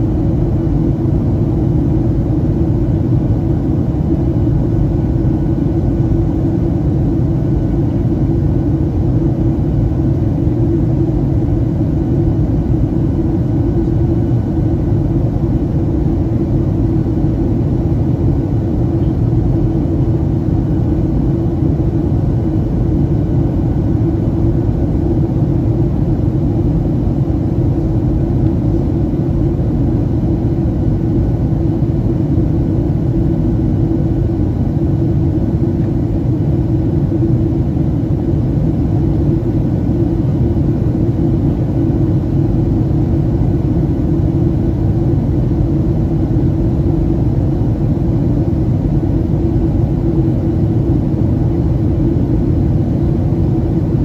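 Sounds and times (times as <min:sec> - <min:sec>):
jet engines rumbling: 0:00.0 - 0:54.0.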